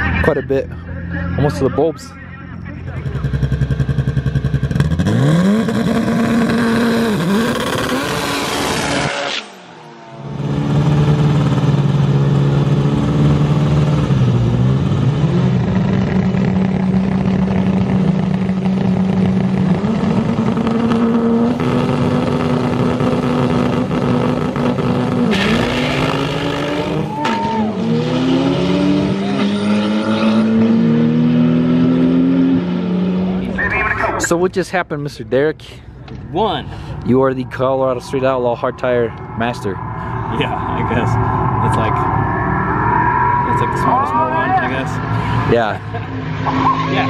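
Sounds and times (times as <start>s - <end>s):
car engine revving and accelerating: 3.3s - 33.6s, 37.6s - 47.0s.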